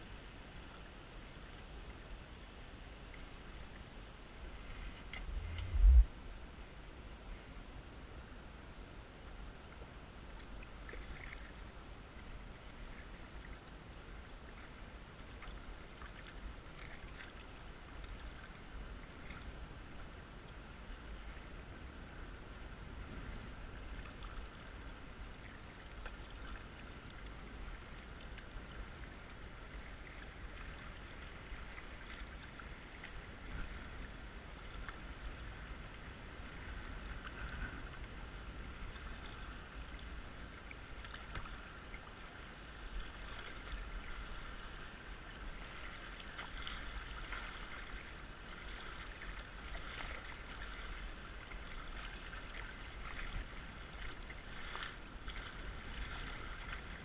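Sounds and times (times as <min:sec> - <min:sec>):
low rumble: 0:04.5 - 0:06.6
paddle strokes splashing: 0:10.4 - 0:11.6, 0:38.9 - 0:57.0
creek water rushing: 0:37.9 - 0:57.0.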